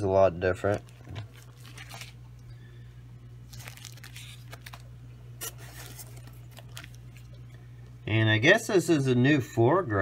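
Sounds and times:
plant packaging crinkling: 0.4 - 2.4, 3.4 - 7.6.

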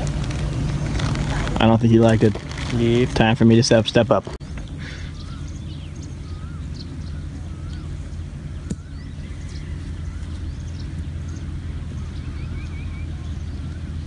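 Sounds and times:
steady low rumble: 0.0 - 14.0
birds whistling: 4.4 - 14.0
high bird chirps: 4.4 - 14.0
golf club striking ball: 8.6 - 9.0.

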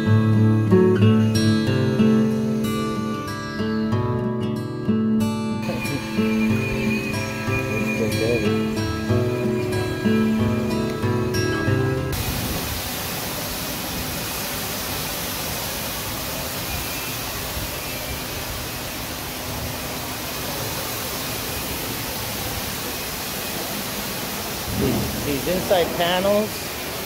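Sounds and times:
guitar music: 0.0 - 12.2
steady rushing noise: 12.1 - 27.0.

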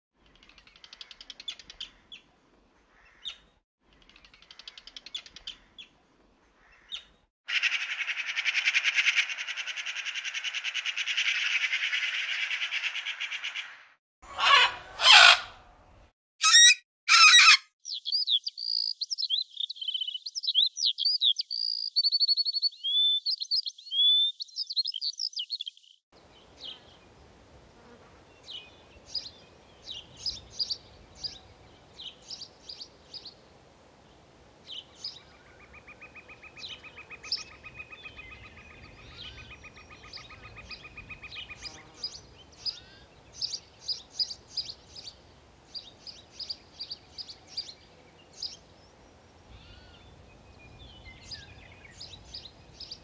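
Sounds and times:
harsh bird calls: 6.6 - 15.7, 16.4 - 18.9
chirping birdsong: 16.4 - 27.2, 28.2 - 33.4, 34.7 - 53.0
faint low background noise: 26.2 - 53.0.

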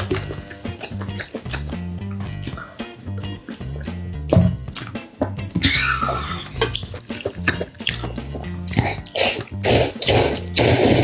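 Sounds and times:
background music with steady beat: 0.0 - 11.0
noodles being slurped: 5.6 - 11.0.

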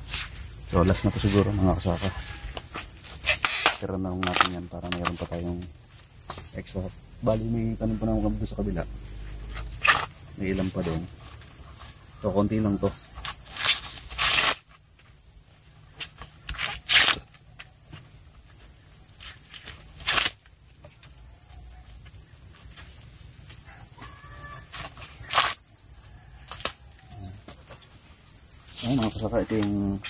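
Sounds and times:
high-pitched insect drone: 0.0 - 30.0
corn plants rustling and cracking: 3.2 - 5.6, 13.5 - 14.8, 19.5 - 20.4, 24.7 - 25.6.

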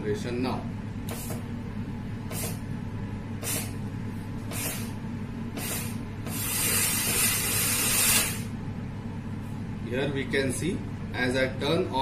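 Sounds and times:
thermal aerosol generator hissing: 0.0 - 8.8
steady low hum: 0.0 - 12.0.

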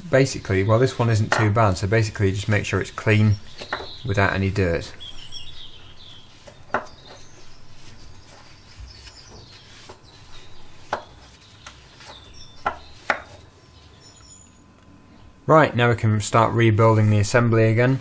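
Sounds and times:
paper towel rubbing metal: 0.0 - 13.4, 16.6 - 18.0
metal disc knocking on wood: 3.6 - 4.0.

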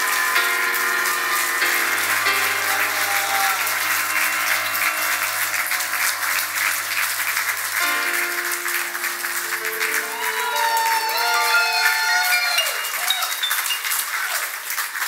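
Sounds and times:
music with held chords: 0.0 - 11.0
audience applauding: 0.0 - 15.0.

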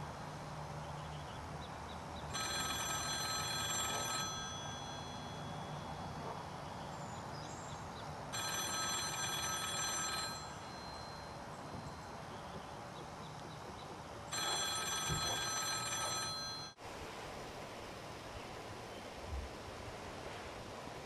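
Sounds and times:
payphone ringing: 2.3 - 6.0, 8.3 - 12.1, 14.3 - 16.8.

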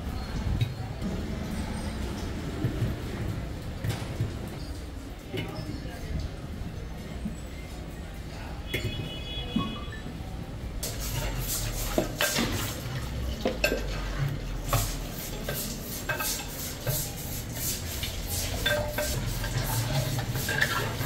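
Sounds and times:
utensils scraping and clinking pots: 10.8 - 21.0.

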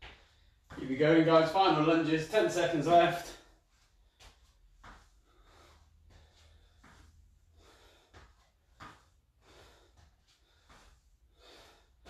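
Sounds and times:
man breathing heavily: 0.0 - 0.8, 3.2 - 12.0.

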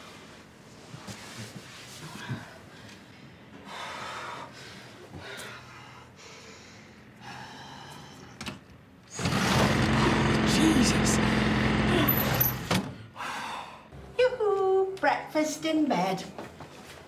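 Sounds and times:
person breathing heavily: 2.0 - 8.4, 13.0 - 13.9.

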